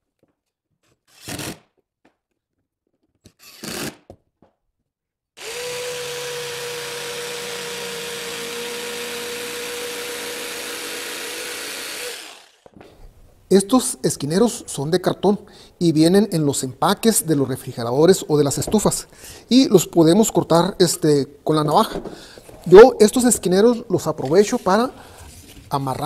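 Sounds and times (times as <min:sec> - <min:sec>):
cordless drill boring: 0:03.4 - 0:04.0, 0:05.4 - 0:12.7
electric jigsaw cutting: 0:05.4 - 0:12.7.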